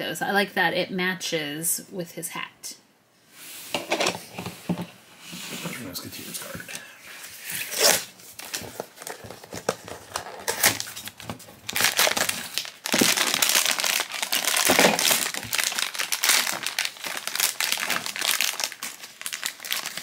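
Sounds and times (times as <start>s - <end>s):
foil bag tearing and crinkling: 7.6s - 20.0s.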